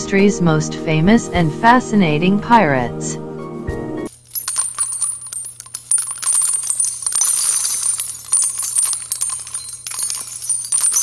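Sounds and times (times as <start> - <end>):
jingling metallic clinks: 4.1 - 11.0.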